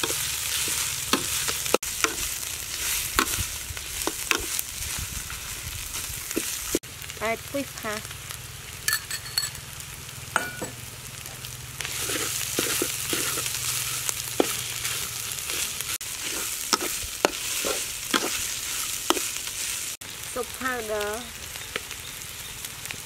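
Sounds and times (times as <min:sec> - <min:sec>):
metal spatula scraping a wok: 0:00.0 - 0:05.4, 0:11.8 - 0:20.0
food sizzling in oil in a wok: 0:00.0 - 0:23.0.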